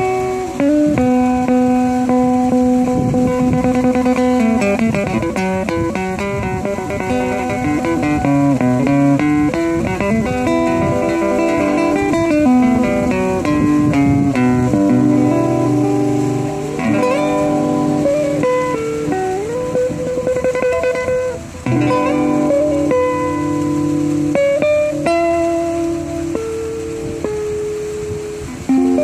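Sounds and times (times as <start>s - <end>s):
classical guitar fingerstyle: 0.0s - 29.0s.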